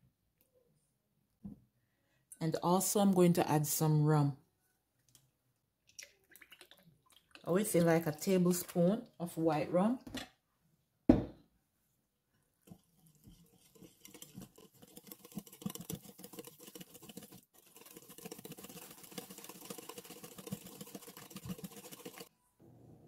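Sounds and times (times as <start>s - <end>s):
whisk beating batter in bowl: 12.5s - 22.3s.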